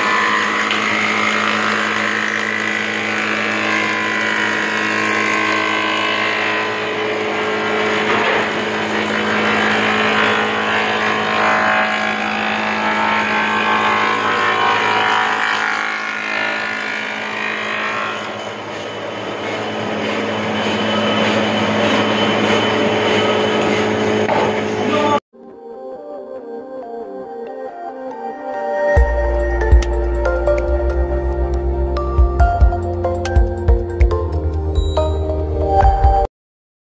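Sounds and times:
planer cutting wooden board: 0:00.0 - 0:24.9
wood planer motor hum: 0:00.0 - 0:25.1.

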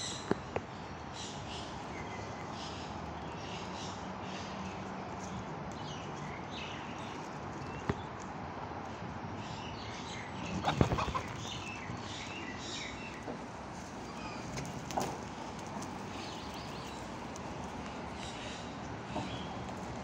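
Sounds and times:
chickens chirping and clucking: 0:10.2 - 0:17.3.

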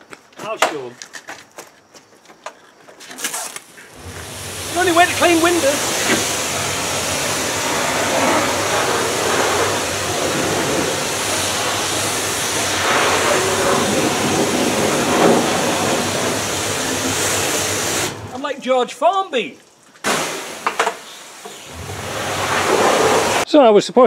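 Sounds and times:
pressure washer spraying: 0:04.0 - 0:18.5, 0:20.0 - 0:23.4.

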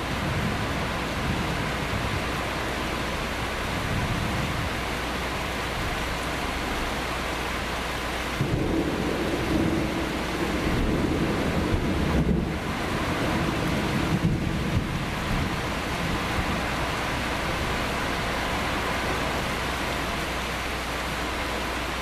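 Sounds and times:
steady rain falling: 0:00.0 - 0:22.0
thunder rumbling: 0:08.4 - 0:18.3.

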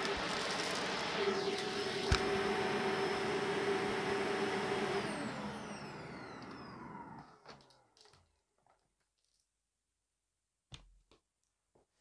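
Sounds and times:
motor winding down: 0:00.0 - 0:07.3
vacuum cleaner running: 0:00.0 - 0:07.9.

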